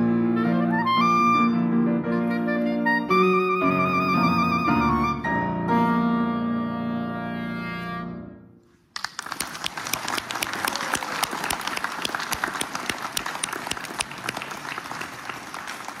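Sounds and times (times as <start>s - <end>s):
clarinet and piano note: 0.0s - 8.4s
audience applauding: 8.9s - 16.0s.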